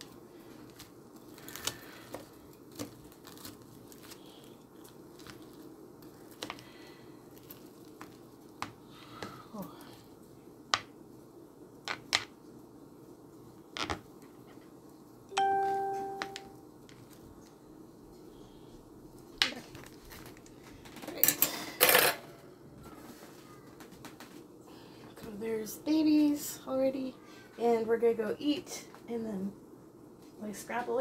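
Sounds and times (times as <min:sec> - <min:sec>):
clear ding: 0:15.3 - 0:16.6.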